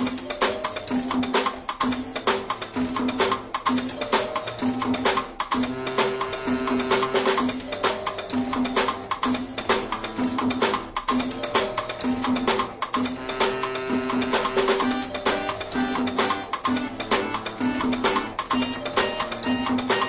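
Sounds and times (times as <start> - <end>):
music with busy percussion: 0.0 - 20.0.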